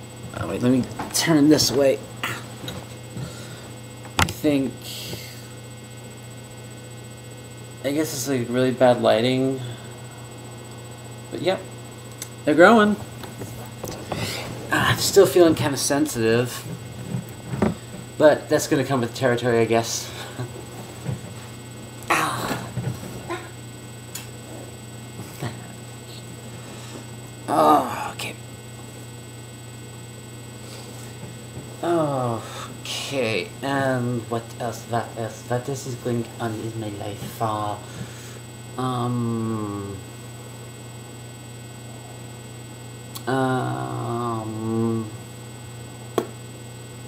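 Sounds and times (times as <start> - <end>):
low electrical hum: 0.0 - 47.0
person humming hmm: 22.0 - 22.7, 43.1 - 45.2.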